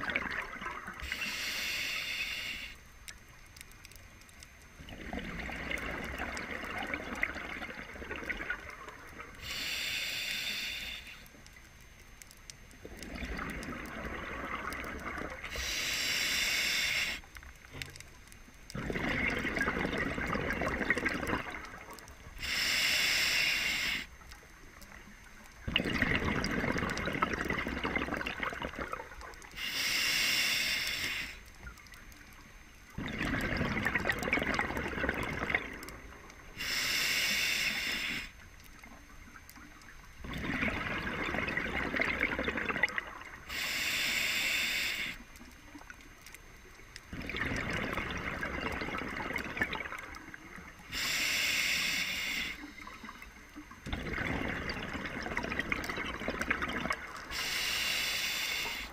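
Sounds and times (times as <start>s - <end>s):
regulator inhalation hiss: 1.0s - 3.0s, 9.3s - 11.4s, 15.4s - 17.4s, 22.3s - 24.2s, 29.5s - 31.6s, 36.4s - 38.5s, 43.3s - 45.3s, 50.8s - 53.4s, 57.2s - 58.9s.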